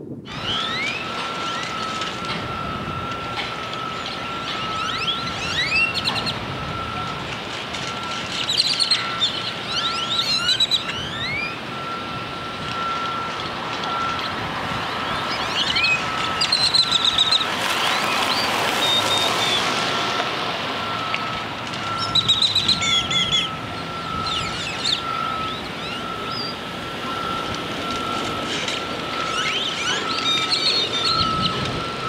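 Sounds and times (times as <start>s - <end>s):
steady high whine: 0.0s - 32.0s
birds chirping: 3.8s - 7.0s, 8.0s - 12.0s, 12.8s - 20.0s, 21.8s - 32.0s.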